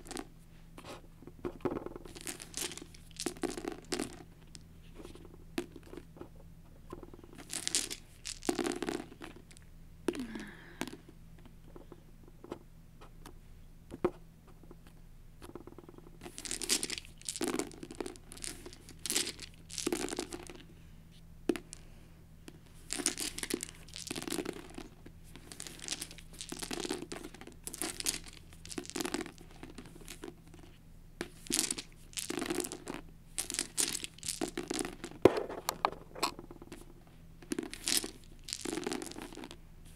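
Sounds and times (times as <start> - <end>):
plastic dice rattling and clacking: 1.5 - 6.1, 6.9 - 9.6, 15.5 - 20.6, 22.9 - 30.4, 31.3 - 39.6.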